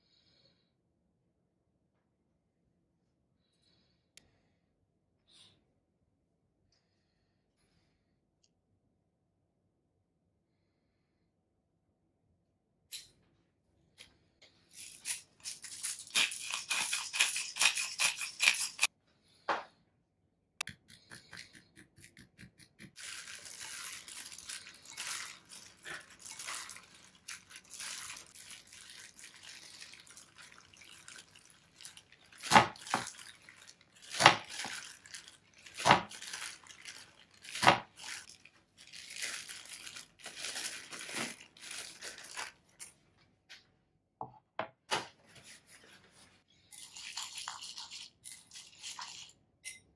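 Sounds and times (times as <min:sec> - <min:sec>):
hand squishing meat in a bowl: 0:22.9 - 0:38.7
plastic glove crinkling: 0:22.9 - 0:42.9.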